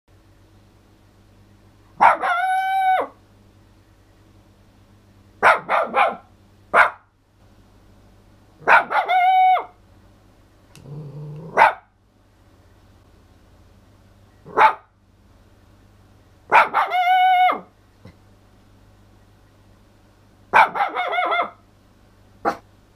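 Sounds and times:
dog barking: 2.0 - 3.2, 5.4 - 7.1, 8.6 - 9.8, 11.5 - 11.9, 14.5 - 14.9, 16.5 - 17.7, 20.5 - 21.6, 22.4 - 22.6
dog howling: 2.1 - 3.2, 8.7 - 9.8, 16.6 - 17.7.

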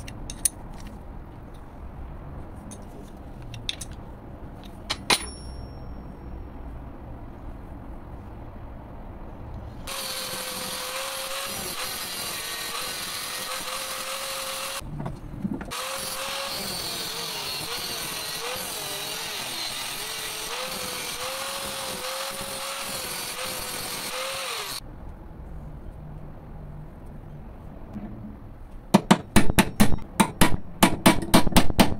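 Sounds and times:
angle grinder cutting steel: 9.9 - 14.8, 15.7 - 24.8.

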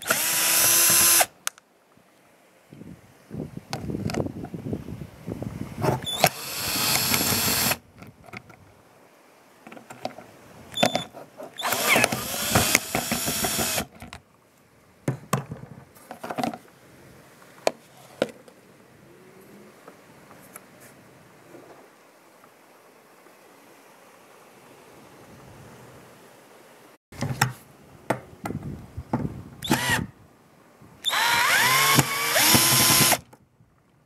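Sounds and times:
power drill backing out screws: 6.1 - 7.8, 11.6 - 13.9, 31.1 - 33.2
sharp clicks and knocks: 11.7 - 14.2.

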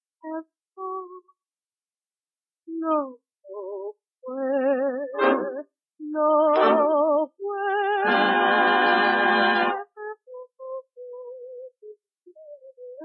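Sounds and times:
old record music with vibrato: 5.2 - 5.6, 6.5 - 7.1, 7.7 - 9.8.

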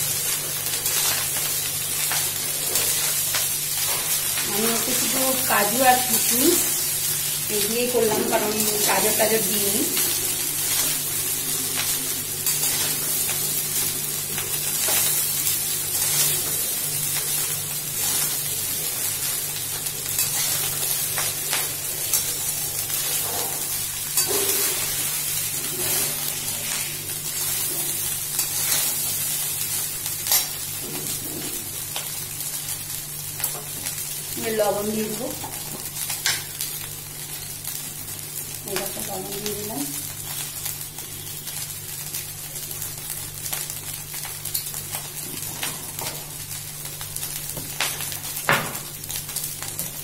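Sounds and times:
rice sizzling in a wok: 0.0 - 50.0
metal spatula scraping a pan: 24.2 - 25.0.

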